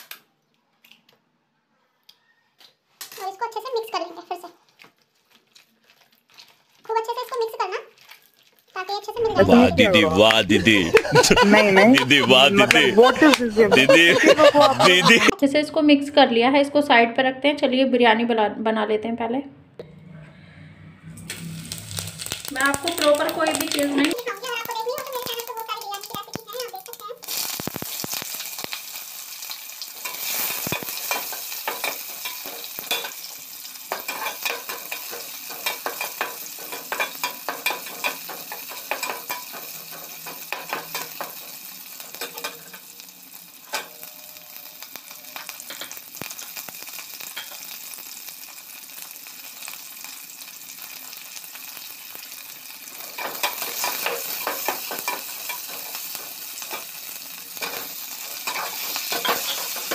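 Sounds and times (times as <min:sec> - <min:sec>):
onions sizzling in hot oil: 0:05.2 - 0:09.8, 0:10.7 - 0:15.4, 0:21.3 - 0:59.9.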